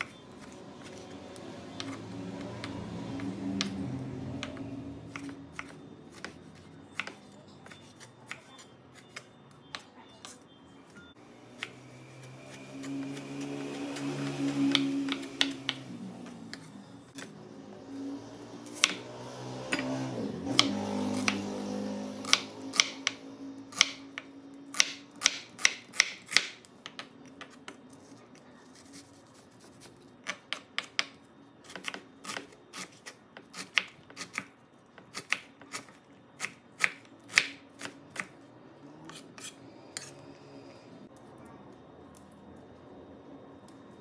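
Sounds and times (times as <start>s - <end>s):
knife chopping on wooden board: 4.4s - 6.4s, 19.7s - 21.4s.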